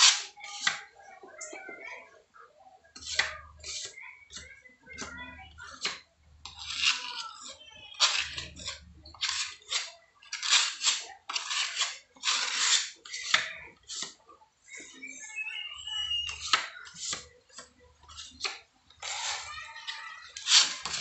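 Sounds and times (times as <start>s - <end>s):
putty knife scraping wall: 8.0s - 14.2s
blade scraped against knife squeak: 14.7s - 17.3s.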